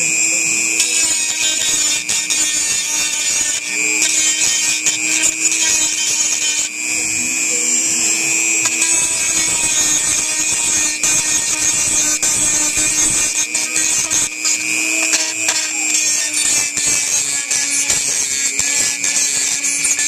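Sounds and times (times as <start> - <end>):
grinding stone scraping metal: 0.0 - 20.0
rotary tool whining: 0.0 - 20.0.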